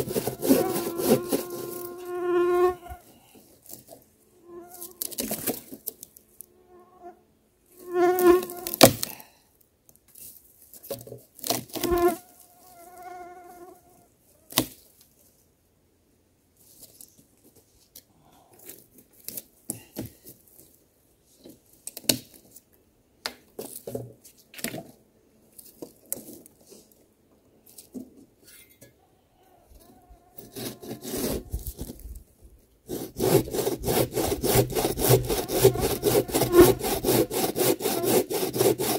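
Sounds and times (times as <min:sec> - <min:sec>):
hand saw cutting a log: 0:00.0 - 0:02.8, 0:30.4 - 0:32.0, 0:32.8 - 0:38.9
insect buzzing: 0:00.4 - 0:03.0, 0:07.8 - 0:08.8, 0:35.3 - 0:37.0.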